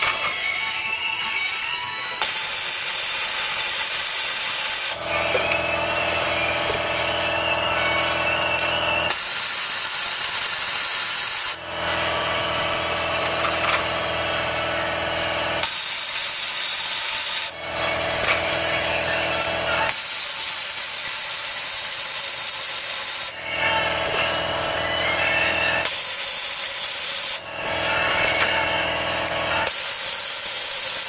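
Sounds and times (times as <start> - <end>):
steady pitched hum: 0.0 - 30.3
spray gun hissing: 2.2 - 5.0, 9.1 - 11.6, 15.6 - 17.5, 19.9 - 23.3, 25.8 - 27.4, 29.7 - 31.0.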